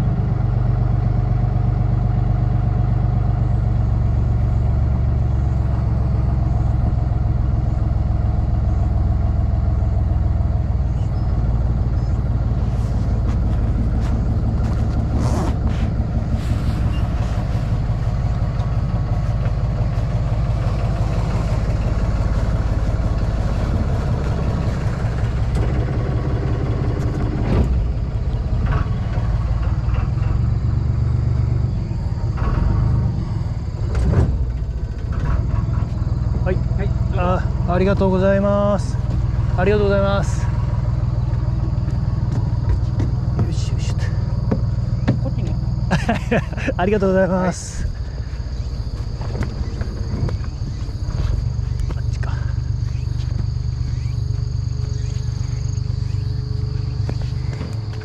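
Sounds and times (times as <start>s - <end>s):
boat engine humming: 0.0s - 58.0s
short knocks: 41.3s - 45.7s.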